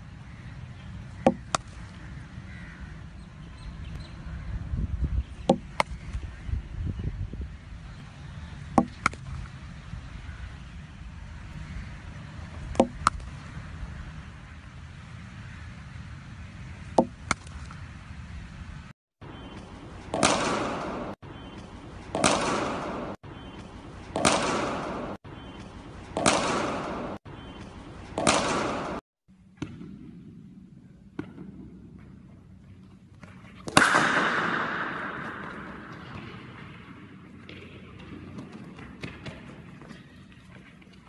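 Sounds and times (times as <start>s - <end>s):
cricket bat striking ball: 1.2s - 1.8s, 5.4s - 6.0s, 8.6s - 9.3s, 12.7s - 13.3s, 16.9s - 17.6s, 20.1s - 25.2s, 26.1s - 29.0s, 33.6s - 39.5s.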